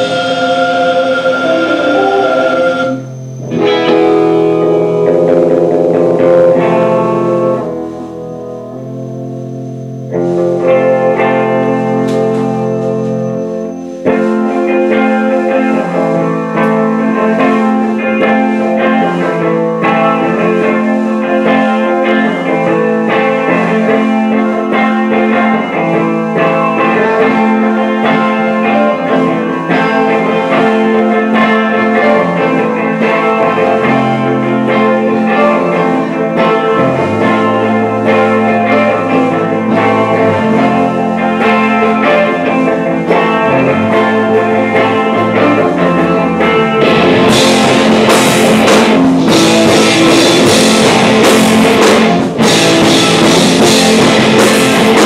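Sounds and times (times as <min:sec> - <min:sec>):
drums: 0:00.0 - 0:55.0
electric guitars through amplifiers: 0:00.0 - 0:55.0.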